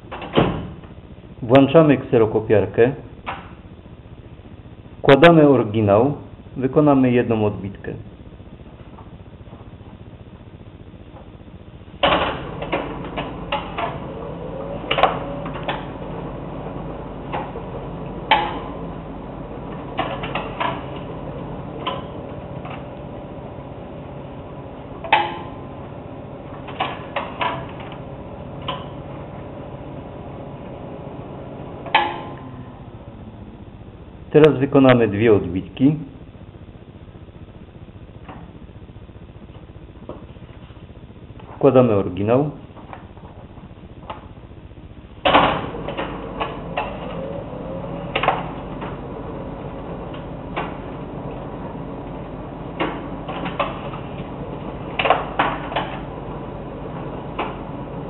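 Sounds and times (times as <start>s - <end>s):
copier humming: 0.0s - 58.0s
copier mechanism clicking and clunking: 12.0s - 19.0s, 19.6s - 23.0s, 25.0s - 25.6s, 26.5s - 29.1s, 45.2s - 58.0s.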